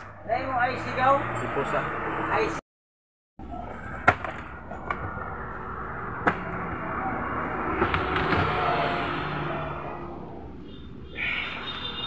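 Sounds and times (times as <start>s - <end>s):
steady background noise: 3.4s - 12.0s.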